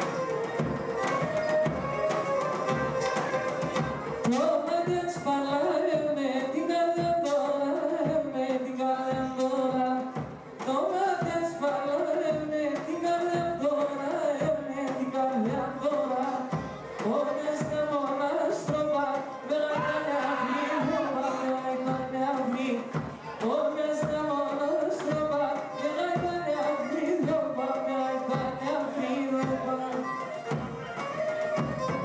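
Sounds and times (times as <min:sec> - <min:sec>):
bowed lyra folk dance music: 0:00.0 - 0:32.0.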